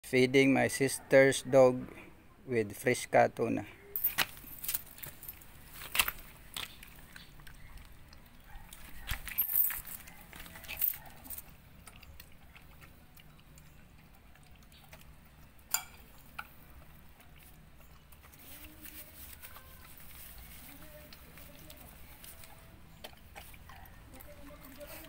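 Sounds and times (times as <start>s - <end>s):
dog chewing and lapping: 5.1s - 25.0s.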